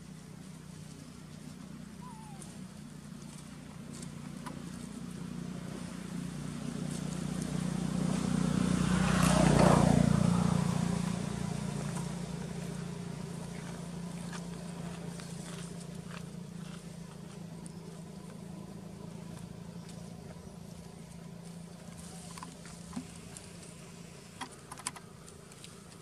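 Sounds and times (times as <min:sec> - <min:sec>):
vehicle engine passing by: 0:00.0 - 0:24.4.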